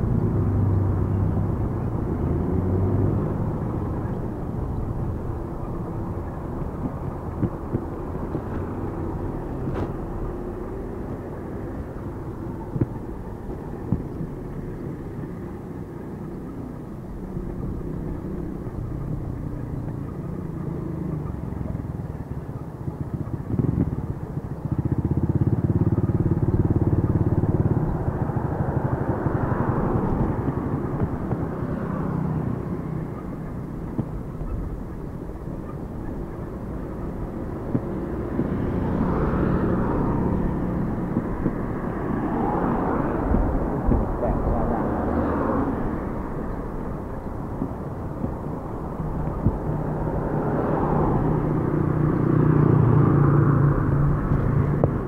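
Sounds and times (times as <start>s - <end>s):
motor vehicle passing close: 0.0s - 55.0s
rumble of passing traffic: 0.0s - 55.0s.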